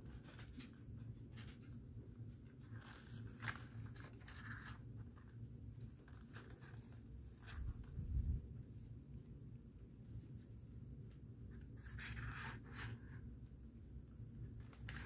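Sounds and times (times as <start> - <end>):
cardboard and plastic crinkling: 0.0 - 8.1.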